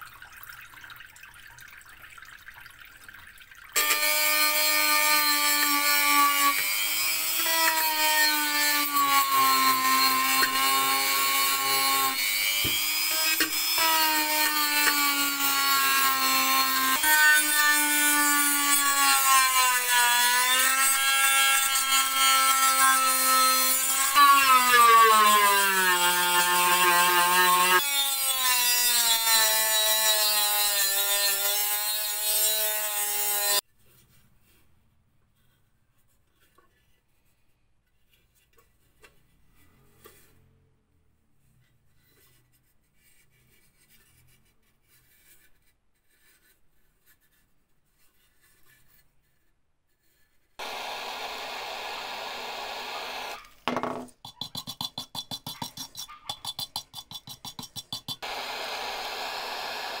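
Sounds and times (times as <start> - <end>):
grinding hiss: 50.6 - 53.4
rotary tool motor whine: 50.6 - 53.4, 58.2 - 60.0.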